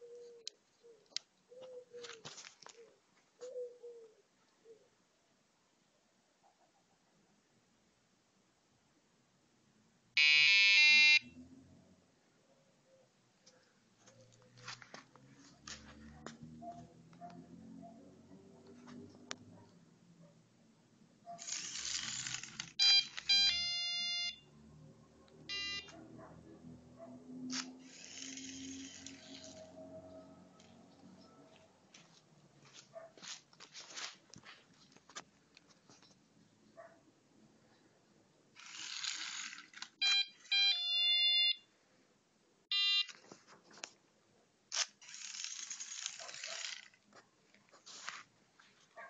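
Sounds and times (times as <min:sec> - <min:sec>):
buzzer beeps: 0:10.2 - 0:11.3, 0:22.8 - 0:24.4, 0:25.5 - 0:25.9, 0:40.0 - 0:41.6, 0:42.7 - 0:43.1
small electric motors whirring: 0:21.4 - 0:22.8, 0:27.5 - 0:29.7, 0:38.6 - 0:40.0, 0:44.7 - 0:47.0.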